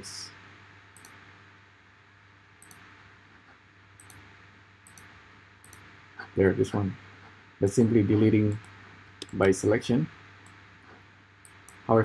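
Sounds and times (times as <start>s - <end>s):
computer mouse clicks: 1.0s - 1.2s, 2.6s - 2.9s, 4.0s - 5.9s, 8.5s - 9.5s, 11.4s - 11.8s.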